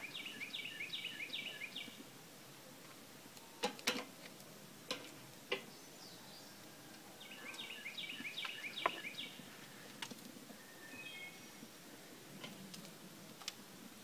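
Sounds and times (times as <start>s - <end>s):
songbird chirping: 0.0s - 2.1s, 5.5s - 12.7s.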